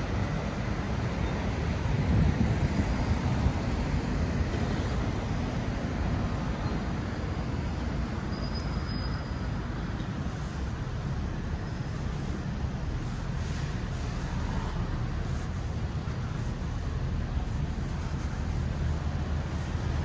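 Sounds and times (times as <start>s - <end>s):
passing cars on city street: 0.0s - 20.0s.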